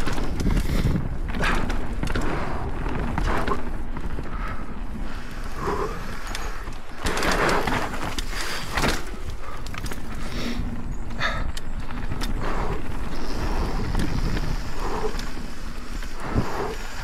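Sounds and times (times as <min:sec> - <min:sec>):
wind on microphone: 0:00.0 - 0:06.6, 0:10.0 - 0:17.0
bike tyres rushing over dirt: 0:00.0 - 0:17.0.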